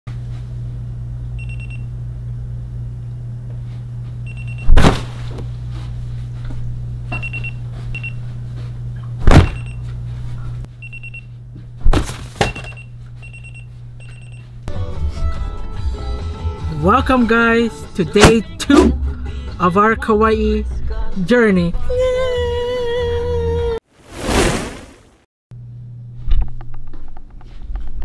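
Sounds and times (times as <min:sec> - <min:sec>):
loud thumps: 0:04.7 - 0:05.4, 0:09.2 - 0:09.7.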